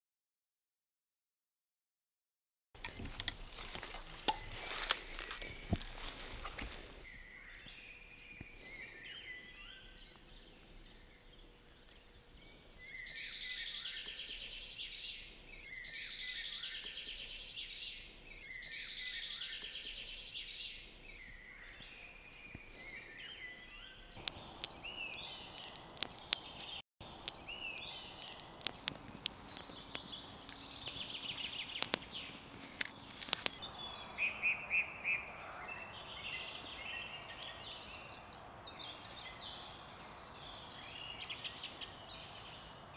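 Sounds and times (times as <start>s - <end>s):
songbirds trilling: 2.8s - 42.9s
campfire crackling and popping: 24.2s - 33.6s
clicks and rustling: 25.6s - 26.8s, 28.2s - 33.6s.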